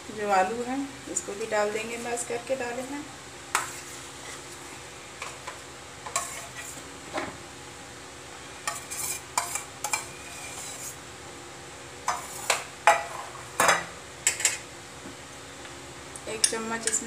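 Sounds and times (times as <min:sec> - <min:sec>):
spoon scraping a steel bowl: 0:06.1 - 0:06.8, 0:08.6 - 0:11.0.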